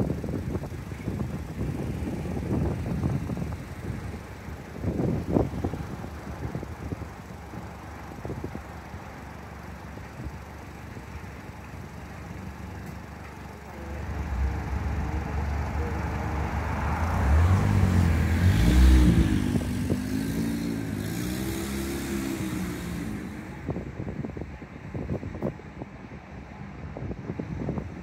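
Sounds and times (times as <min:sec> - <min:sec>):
vehicle engine passing by: 0:13.8 - 0:23.8.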